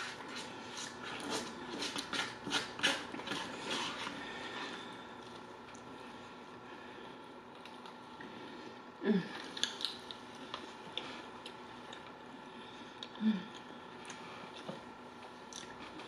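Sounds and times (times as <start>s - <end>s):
person chewing food: 9.4s - 12.3s, 15.4s - 16.0s.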